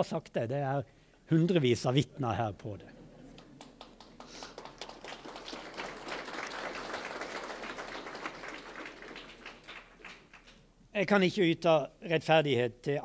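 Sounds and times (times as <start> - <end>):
audience applauding: 3.3 - 10.6.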